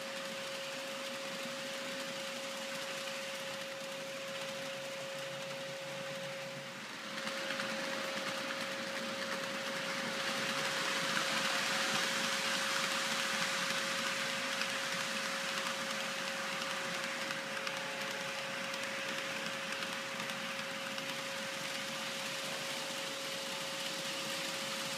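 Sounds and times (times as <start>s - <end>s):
model train wheels rattling: 0.0s - 24.9s.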